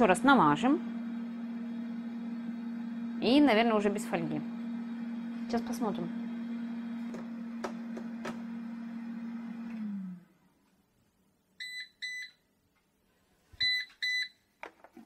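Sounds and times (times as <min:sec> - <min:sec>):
air fryer fan humming: 0:00.0 - 0:10.2
air fryer beeps: 0:11.6 - 0:12.4, 0:13.6 - 0:14.4.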